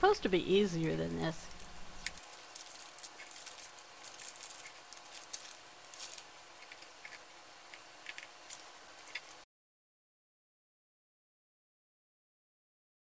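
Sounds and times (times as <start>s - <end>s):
paper crackling and rustling: 1.4s - 9.4s.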